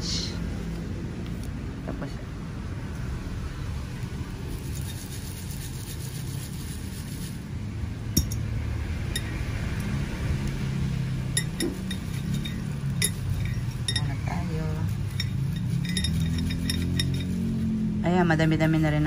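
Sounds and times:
paper slips stirred in glass jar: 0:04.5 - 0:07.5, 0:11.5 - 0:14.1, 0:14.8 - 0:17.7
clinks against glass: 0:08.2 - 0:08.5, 0:09.1 - 0:09.3, 0:11.3 - 0:14.3, 0:15.0 - 0:17.5.

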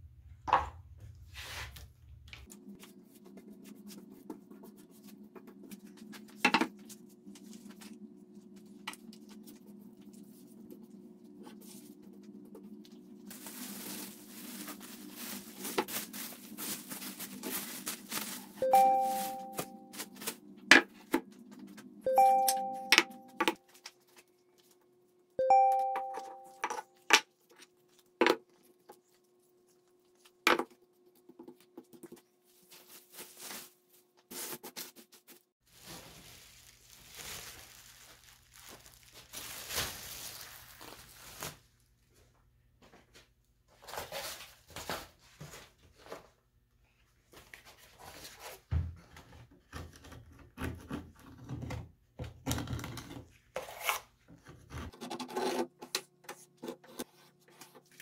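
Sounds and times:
putty knife scraping wood: 0:53.6 - 0:57.7.

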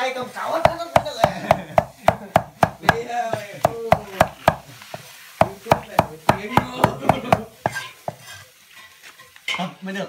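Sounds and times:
knife chopping on wooden board: 0:00.6 - 0:08.3.

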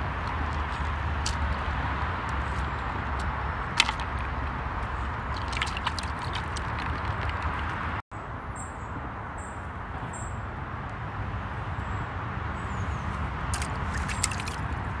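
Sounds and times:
crayfish splashing in bucket: 0:00.0 - 0:07.8, 0:13.5 - 0:15.0
small birds chirping: 0:12.6 - 0:15.0.

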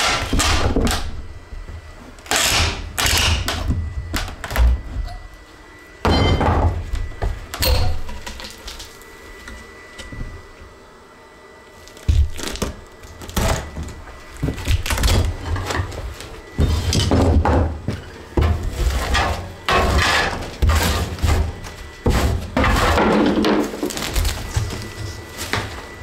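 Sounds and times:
wood cracking and splintering: 0:11.8 - 0:15.4, 0:22.7 - 0:24.9.

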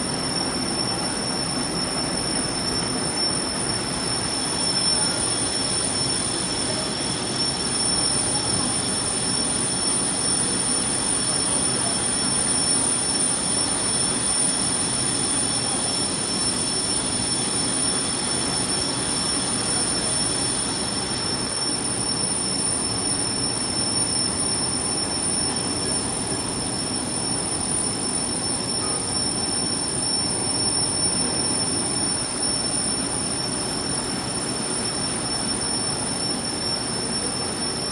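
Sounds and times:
high-pitched whine: 0:00.0 - 0:37.9.

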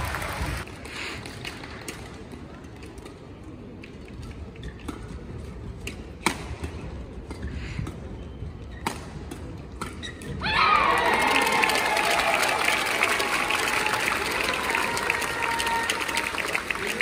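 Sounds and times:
crowd cheering and applause: 0:00.0 - 0:00.7, 0:10.4 - 0:17.0
rackets striking shuttlecock: 0:04.8 - 0:08.0.

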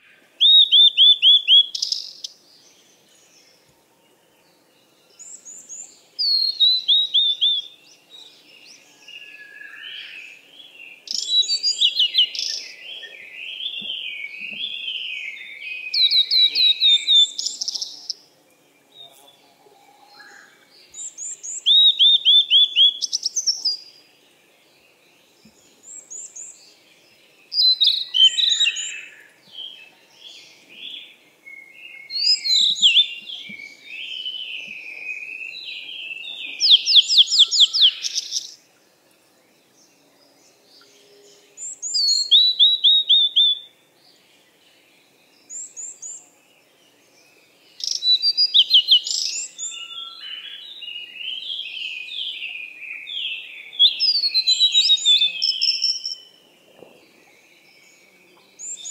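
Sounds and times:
lower warbling bird song: 0:00.0 - 0:58.9
high bird chirps and trills: 0:40.8 - 0:43.7.

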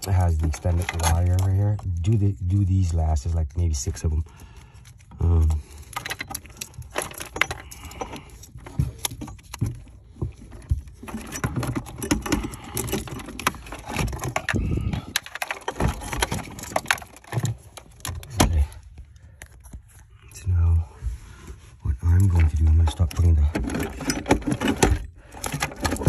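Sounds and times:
plastic connectors rattling and clicking: 0:00.0 - 0:02.2, 0:04.8 - 0:19.8, 0:22.4 - 0:26.0.

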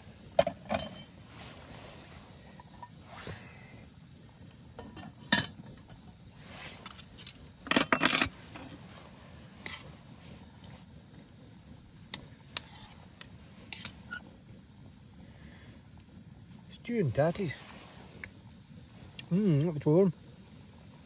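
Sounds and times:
metal pot clattering: 0:00.4 - 0:01.2, 0:04.8 - 0:05.6, 0:06.9 - 0:08.6.

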